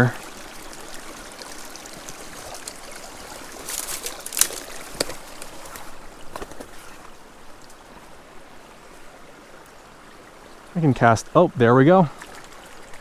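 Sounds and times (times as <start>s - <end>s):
water trickling through dam: 0.0s - 13.0s
footsteps cracking sticks: 3.6s - 6.9s.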